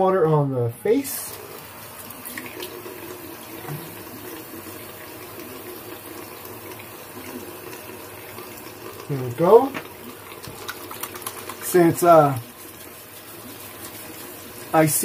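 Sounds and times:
water running into sink: 1.0s - 15.0s
water splashing on face: 9.8s - 14.4s.

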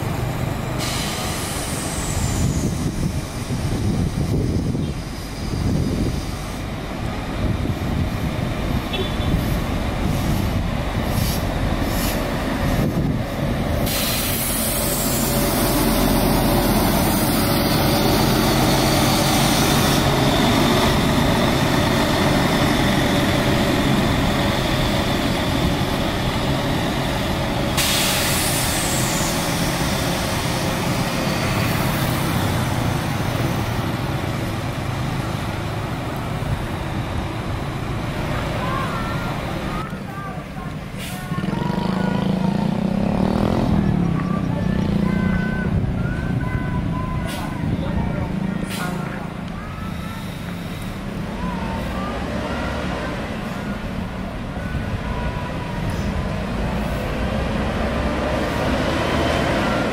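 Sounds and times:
bus diesel engine: 0.0s - 59.9s
air hiss: 0.8s - 3.4s, 10.1s - 12.3s, 13.8s - 17.6s, 27.8s - 30.8s.

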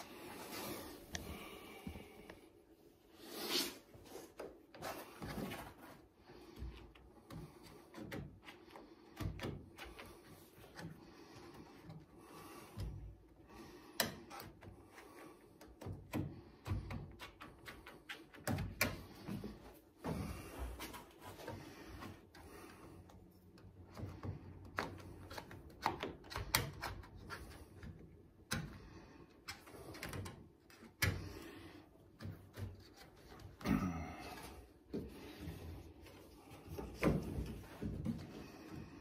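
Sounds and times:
rubber weatherstripping clicking and rubbing: 4.3s - 13.2s, 13.8s - 19.8s, 20.8s - 33.7s.

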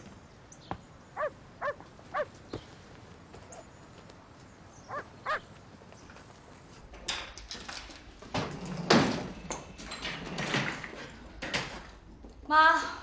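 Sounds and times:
knocks and clatter: 6.8s - 12.5s.

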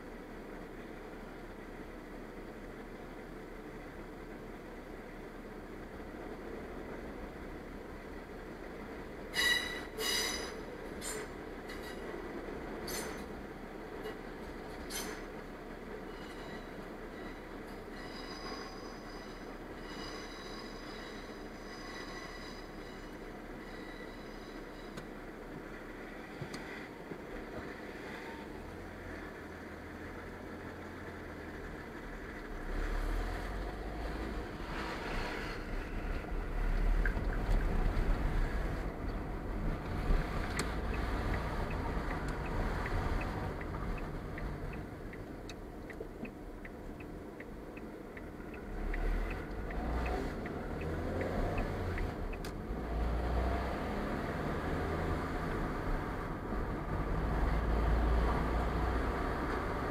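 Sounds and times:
car engine and road rumble: 0.0s - 59.9s
turn signal ticking: 36.1s - 53.2s.

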